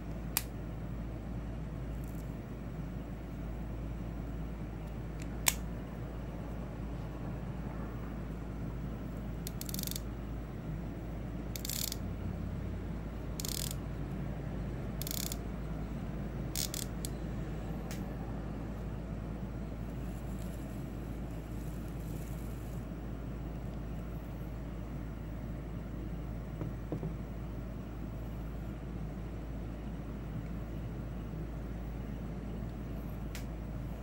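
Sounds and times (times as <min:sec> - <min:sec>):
sharp click: 0:05.2 - 0:05.6
fishing reel clicker chattering: 0:09.4 - 0:10.0, 0:11.6 - 0:12.0, 0:13.4 - 0:13.8, 0:15.0 - 0:15.4, 0:16.6 - 0:17.1.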